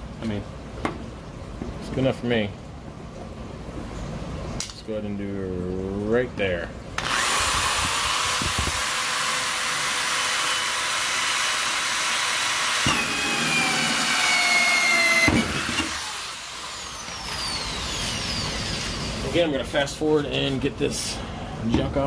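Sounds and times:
power drill cutting plastic: 7.0 - 19.2.

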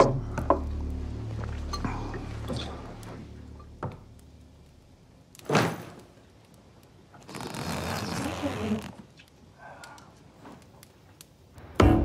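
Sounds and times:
low background music: 0.0 - 4.7, 11.6 - 12.0
rustling: 7.2 - 9.4.

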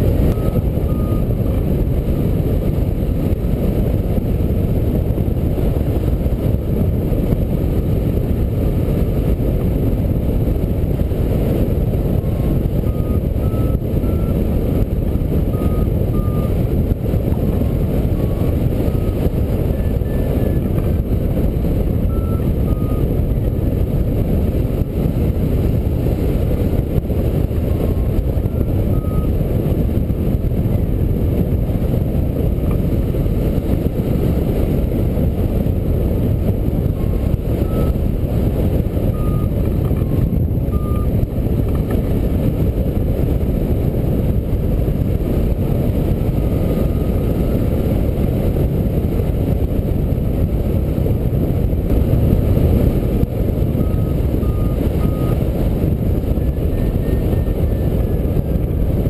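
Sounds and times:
wind rushing on microphone: 0.0 - 59.0
faint short beeps: 0.3 - 1.3.

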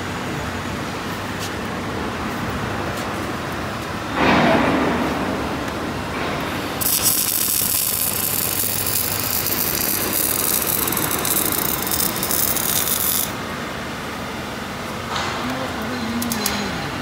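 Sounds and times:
welding arc crackling and sizzling: 2.1 - 17.0.

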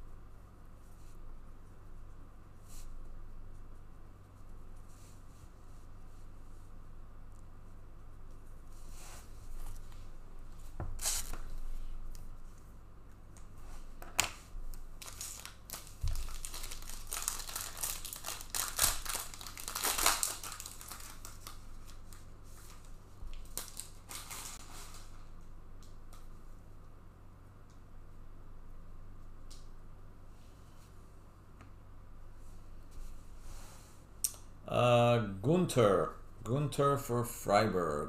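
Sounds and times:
plastic wrapping crinkling and tearing: 15.0 - 25.2.

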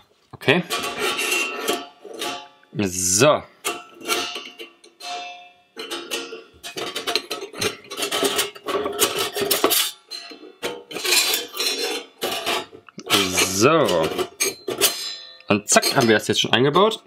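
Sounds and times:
metal grill parts clinking: 0.6 - 2.5, 3.6 - 16.6.

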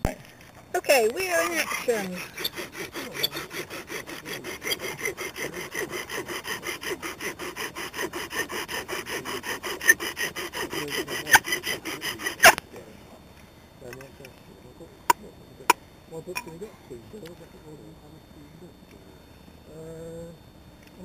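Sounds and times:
bow drill squeaking on wood: 0.0 - 12.6.

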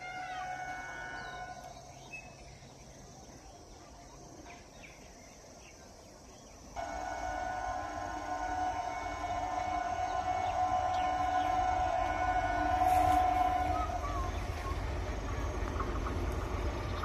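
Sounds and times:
faint insect drone: 0.0 - 17.0
steady chord of tones: 6.8 - 17.0.

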